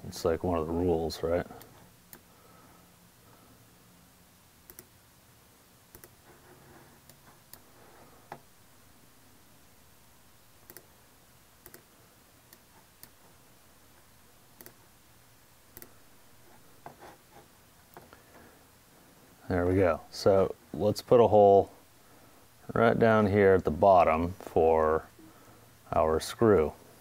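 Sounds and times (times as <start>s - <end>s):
low room hiss: 0.0s - 27.0s.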